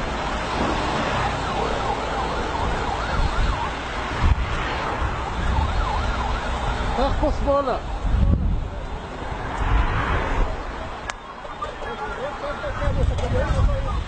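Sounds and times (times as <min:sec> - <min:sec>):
wind and road noise: 0:00.0 - 0:14.0
emergency siren yelping: 0:00.7 - 0:04.4, 0:05.0 - 0:08.4, 0:10.4 - 0:14.0.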